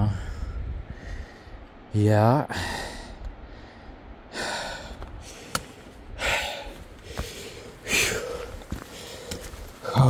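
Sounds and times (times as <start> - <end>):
person breathing heavily: 0.0 - 1.6, 2.5 - 10.0.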